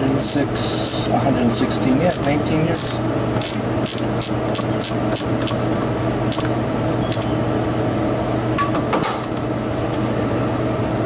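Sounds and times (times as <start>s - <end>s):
steady background hum: 0.0s - 11.0s
ratchet wrench clicking: 2.1s - 5.6s.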